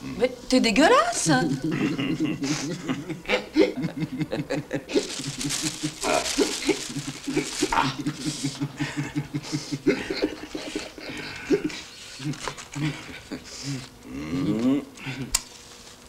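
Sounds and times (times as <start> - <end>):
man laughing: 1.5 - 15.4.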